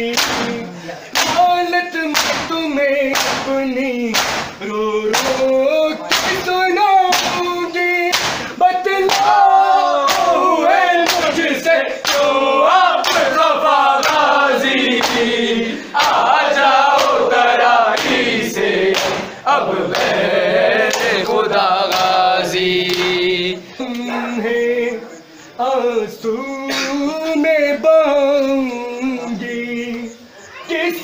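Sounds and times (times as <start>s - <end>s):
men chanting in chorus: 0.0s - 31.0s
hand slaps on chest: 3.1s - 3.5s, 4.1s - 4.6s, 8.1s - 8.5s.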